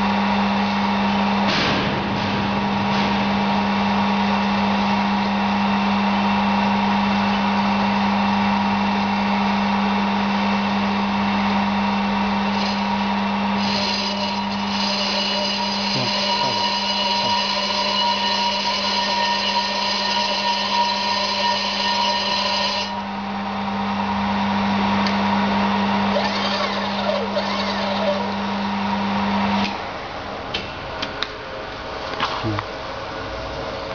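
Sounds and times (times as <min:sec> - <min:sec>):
lathe motor hum: 0:03.3 - 0:30.4
high-pitched whine: 0:11.9 - 0:29.7.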